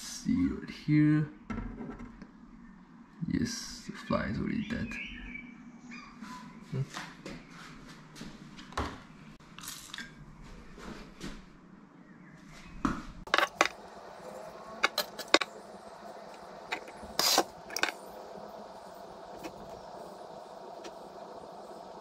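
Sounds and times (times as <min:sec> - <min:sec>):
faint steady hum: 0:07.6 - 0:22.0
hiss-like burst: 0:14.9 - 0:22.0.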